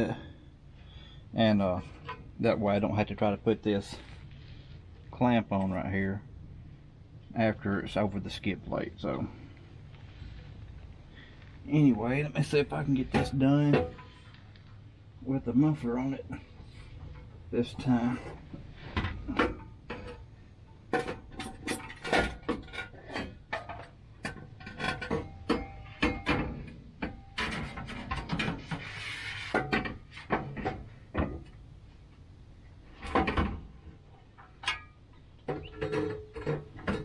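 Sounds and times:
metal knocks and clanks: 16.6s - 31.6s, 32.9s - 37.0s
metal scraping: 20.9s - 31.6s.

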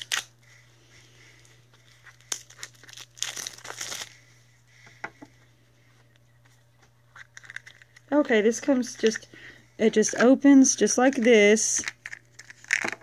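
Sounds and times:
packaging crinkling and rustling: 0.0s - 0.3s, 1.4s - 4.2s, 7.1s - 8.1s, 11.0s - 13.0s.

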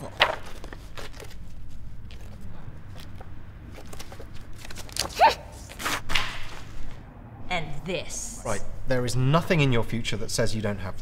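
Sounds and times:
paper crumpling: 0.0s - 3.1s
paper tearing: 4.6s - 6.2s.

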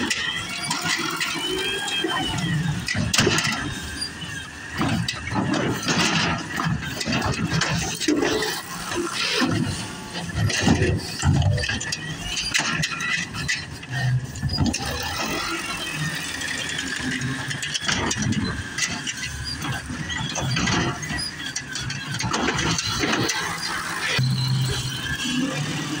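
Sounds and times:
lifting arm whine and squeal: 0.0s - 5.8s, 10.7s - 26.0s
cart knocking and rattling: 0.0s - 26.0s
garbage truck running: 0.0s - 26.0s.

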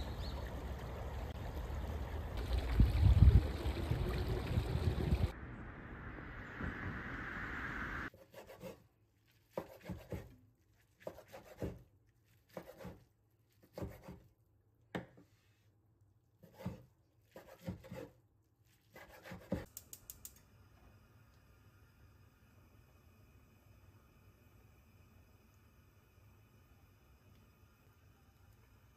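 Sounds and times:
steady hiss: 2.6s - 8.1s
knife cutting on wooden board: 9.5s - 10.3s, 16.4s - 18.1s.

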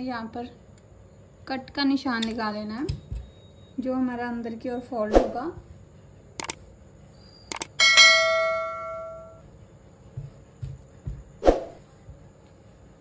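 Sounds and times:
short clicks: 2.2s - 3.0s, 6.4s - 6.6s, 7.5s - 7.8s
bright metallic ding: 7.8s - 9.4s.

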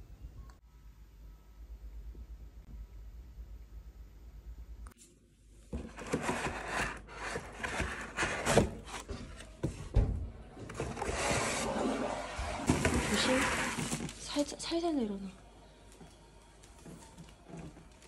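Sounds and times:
objects rubbing and scraping: 5.9s - 9.7s, 10.6s - 14.2s.

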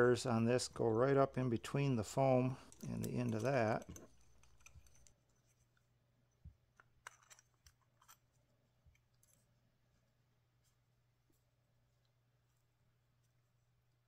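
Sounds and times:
small parts clicking and tapping: 2.0s - 9.4s.

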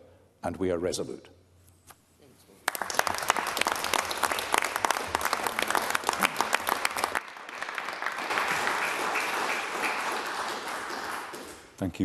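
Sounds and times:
crowd applauding: 2.6s - 11.8s.

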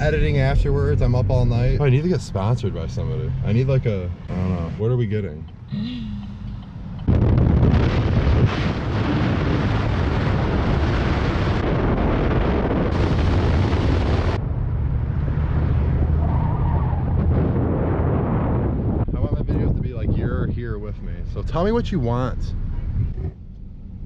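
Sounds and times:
low steady engine hum: 0.0s - 11.6s, 13.0s - 24.0s
tyre and road noise: 0.0s - 24.0s
wind rushing over microphone: 6.8s - 23.3s.

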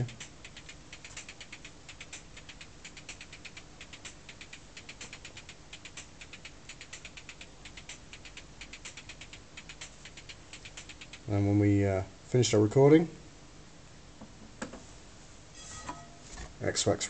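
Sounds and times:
faint high-pitched percussion ticking: 0.0s - 11.3s.

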